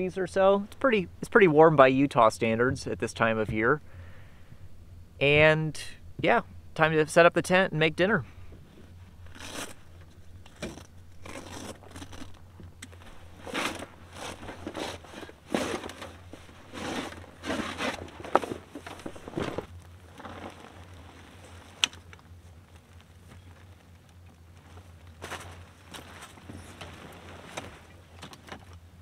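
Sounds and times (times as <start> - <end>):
fabric cover rustling: 10.6 - 21.8, 24.6 - 28.1.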